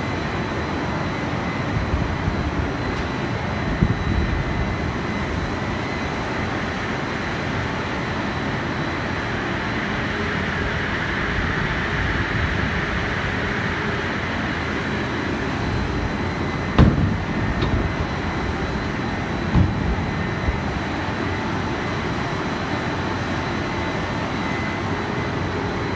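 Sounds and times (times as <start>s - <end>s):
factory machinery running: 0.0s - 25.9s
sharp knock: 16.8s - 17.2s
dull thump: 16.8s - 17.8s, 19.5s - 20.0s.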